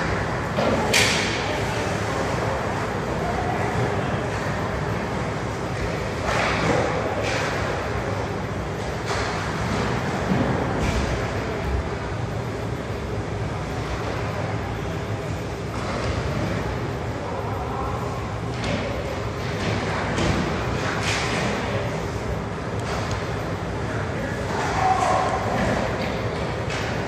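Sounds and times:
ice rink rumble: 0:00.0 - 0:27.0
hockey sticks and puck clacking: 0:00.1 - 0:01.4, 0:05.8 - 0:07.8, 0:18.5 - 0:21.7, 0:22.8 - 0:23.3, 0:24.5 - 0:27.0.

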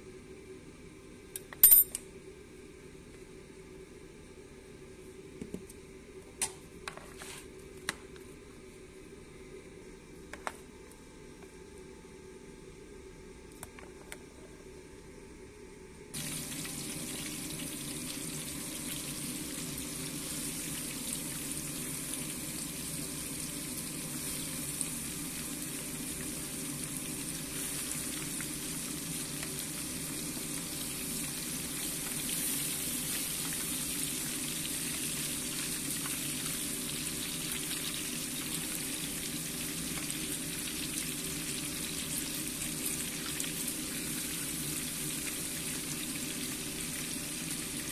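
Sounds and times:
fish sizzling in hot oil: 0:16.2 - 0:47.9.

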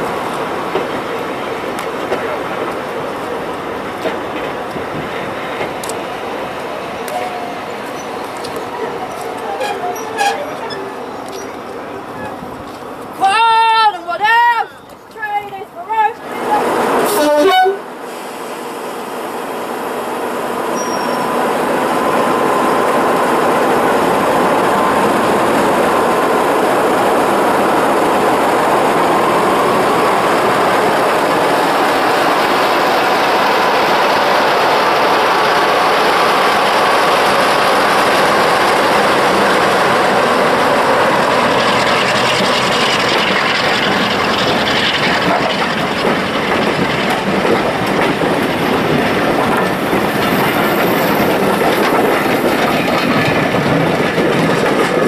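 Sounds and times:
wheels rattling over rail joints: 0:00.0 - 0:17.3, 0:20.5 - 0:55.0
diesel locomotive engine running: 0:14.7 - 0:55.0.

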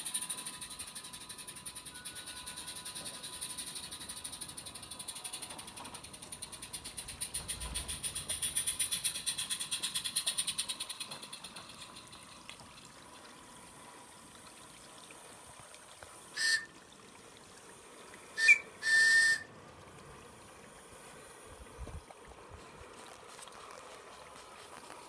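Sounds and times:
model train rhythmic beat: 0:00.0 - 0:12.2, 0:16.4 - 0:16.7, 0:18.4 - 0:19.5
model locomotive whistle toots: 0:01.7 - 0:03.9, 0:16.3 - 0:16.8, 0:18.4 - 0:19.6.

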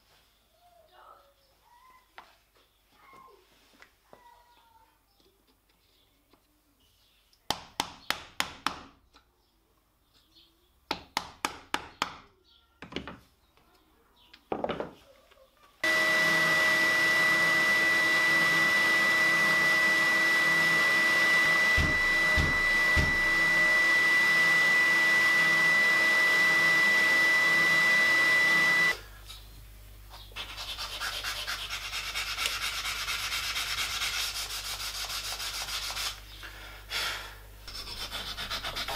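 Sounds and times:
spindle sander with high whine: 0:15.8 - 0:29.0
hand sanding plywood: 0:15.9 - 0:28.9, 0:30.4 - 0:36.2, 0:37.7 - 0:38.9.

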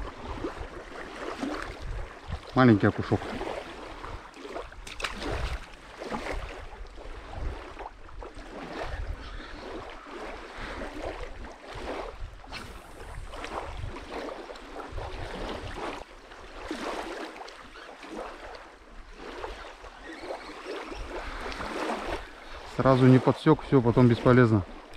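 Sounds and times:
wind buffeting microphone: 0:00.0 - 0:16.0
waves lapping on sandy shore: 0:00.0 - 0:24.9.

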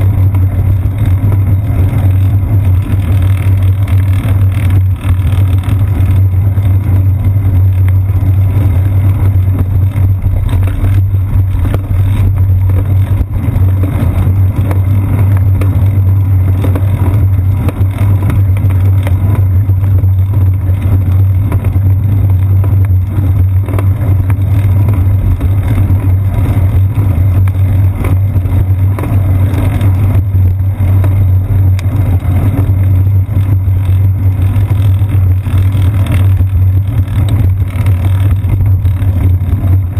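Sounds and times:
bicycle road vibration rumble: 0:00.0 - 0:39.9
wind buffeting: 0:08.9 - 0:16.4.

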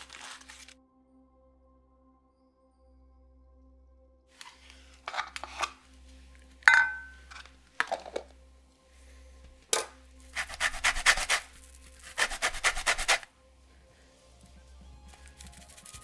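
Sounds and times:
grater rasping: 0:10.3 - 0:13.2.

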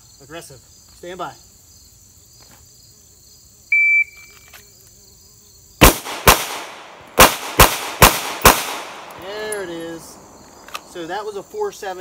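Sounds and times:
insects chirping: 0:00.0 - 0:12.0
pistol shots: 0:05.8 - 0:10.9.

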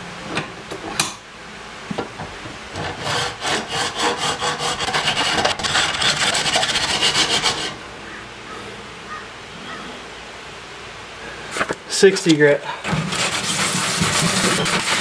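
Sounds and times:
hand file scraping plastic: 0:02.8 - 0:07.8, 0:11.6 - 0:15.0.

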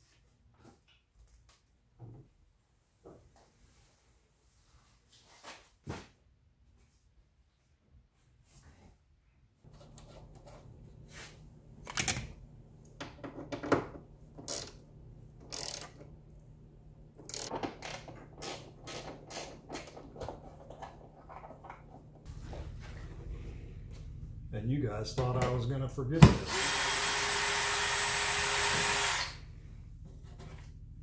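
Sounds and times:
steady low hum: 0:13.9 - 0:17.4, 0:20.0 - 0:26.6, 0:29.2 - 0:31.0.

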